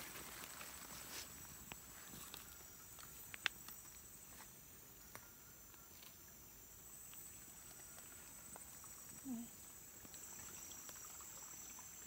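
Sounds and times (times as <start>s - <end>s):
small ticks: 0.1s - 6.3s.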